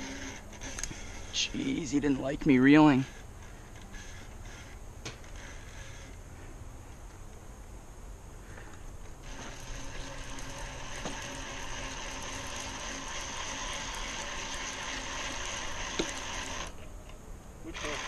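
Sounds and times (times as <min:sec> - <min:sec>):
fishing reel ratchet buzzing: 0:00.0 - 0:06.2, 0:09.2 - 0:16.8, 0:17.7 - 0:18.0.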